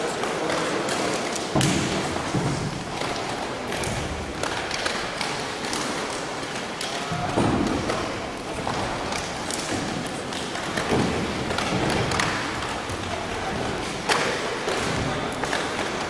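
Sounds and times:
thuds and taps of strikes: 1.5s - 5.0s.

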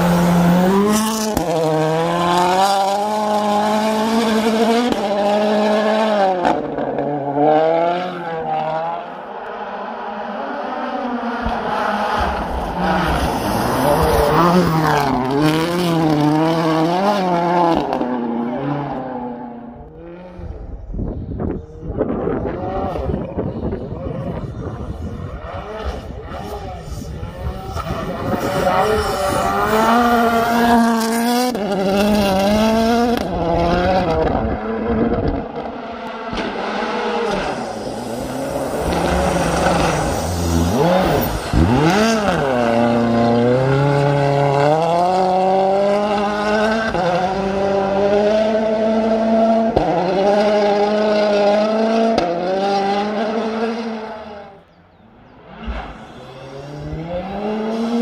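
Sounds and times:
rally car engine revving: 0.0s - 58.0s.

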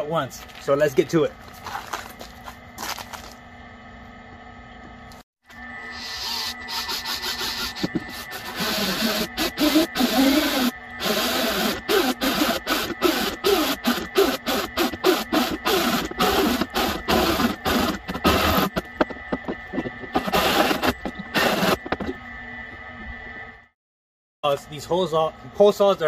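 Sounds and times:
hole saw grinding metal: 5.8s - 22.2s.

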